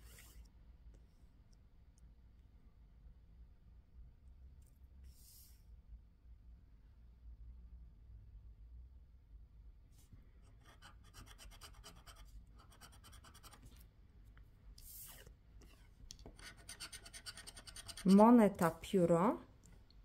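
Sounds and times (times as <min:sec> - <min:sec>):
scraping scratch-off ticket coating: 0:16.4 - 0:18.2.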